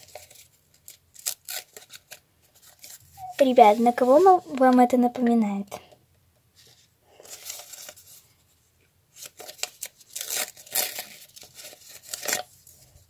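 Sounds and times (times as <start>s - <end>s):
paper rustling and tearing: 0.0s - 4.8s, 7.2s - 8.2s, 9.1s - 13.0s.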